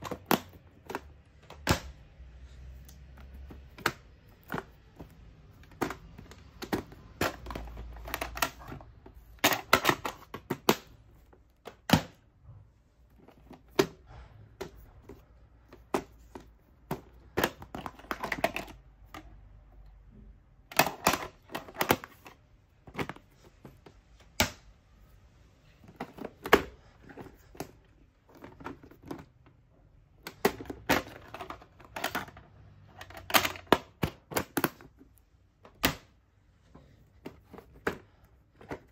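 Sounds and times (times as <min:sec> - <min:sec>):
cassettes clacking against plastic: 0:00.0 - 0:12.2, 0:13.1 - 0:24.8, 0:25.6 - 0:36.2, 0:37.0 - 0:38.9
plastic cases snapping open and shut: 0:00.0 - 0:12.3, 0:13.1 - 0:24.8, 0:25.7 - 0:36.2, 0:37.1 - 0:38.9
plastic rattling: 0:02.9 - 0:12.2, 0:13.1 - 0:19.5, 0:20.6 - 0:24.6, 0:25.7 - 0:36.2.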